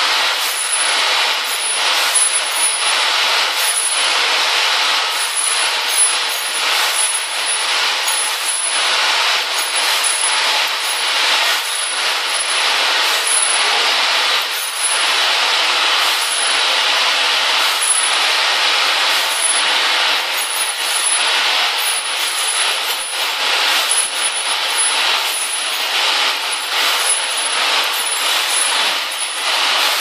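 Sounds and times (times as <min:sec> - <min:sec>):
small metal parts rattling: 0:05.1 - 0:13.7, 0:19.2 - 0:30.0.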